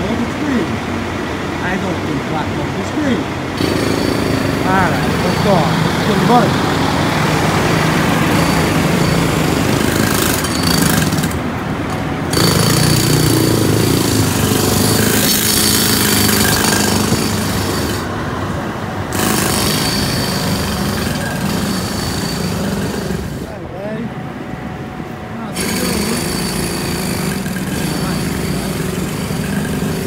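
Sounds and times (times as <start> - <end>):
jackhammer running: 3.4 - 18.2, 19.0 - 23.6, 25.5 - 30.0.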